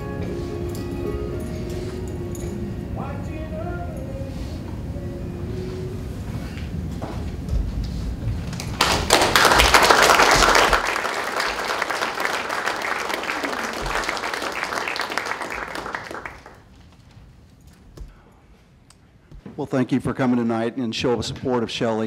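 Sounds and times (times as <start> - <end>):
crowd applauding: 8.5 - 17.1.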